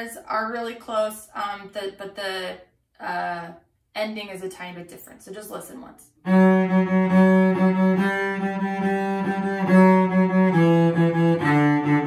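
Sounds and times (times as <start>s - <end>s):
solo cello bowed: 6.2s - 12.0s.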